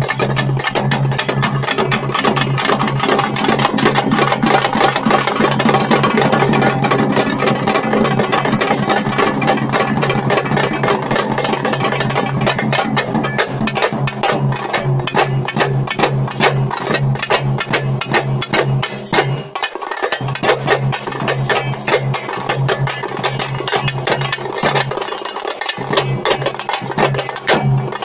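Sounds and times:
bass drum beat: 0.0s - 19.6s, 20.3s - 25.1s
frame drums beaten with sticks: 0.0s - 28.0s.

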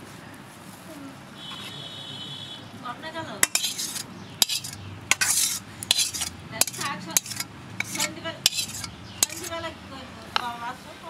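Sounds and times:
metal utensils clinking on cookware: 3.4s - 9.6s.

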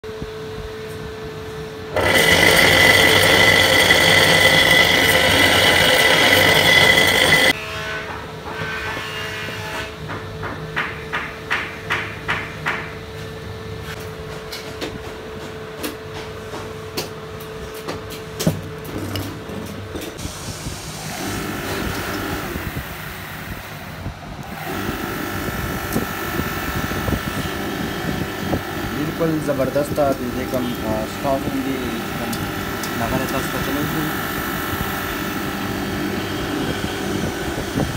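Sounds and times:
water pump motor whining: 1.9s - 7.6s, 21.0s - 23.8s, 24.4s - 37.9s
mechanical rattle: 2.0s - 7.5s.

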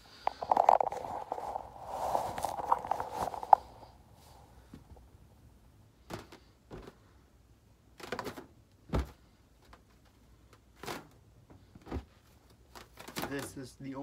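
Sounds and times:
balloon scuffs and rubs: 0.2s - 5.0s.

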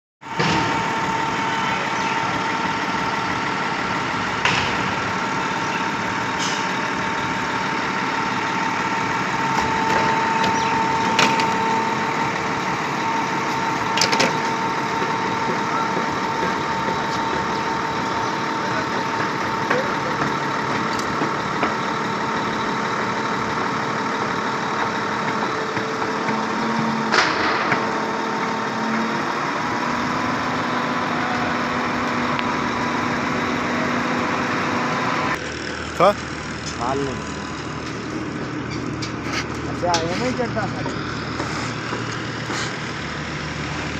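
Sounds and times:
concrete pump diesel engine: 0.2s - 43.9s.

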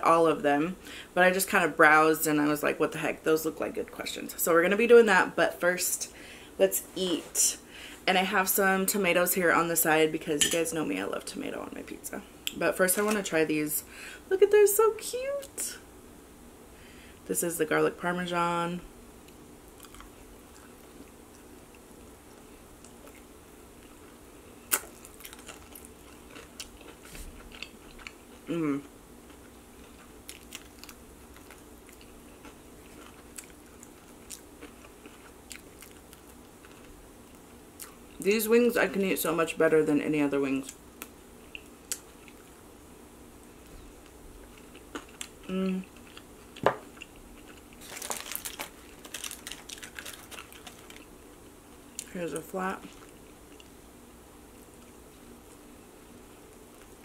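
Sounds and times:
chewing chicken wing: 19.7s - 24.0s, 24.7s - 38.0s
aluminium foil crinkling: 47.8s - 51.1s.

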